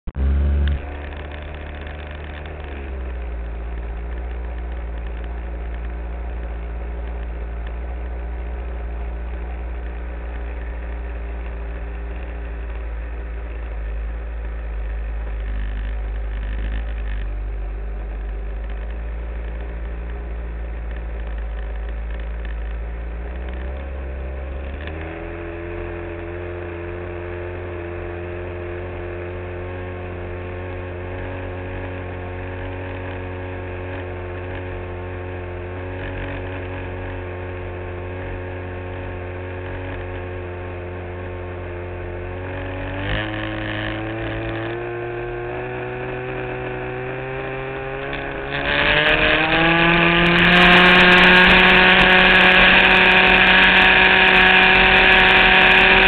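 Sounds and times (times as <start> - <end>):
model airplane engine running: 31.5 - 56.0.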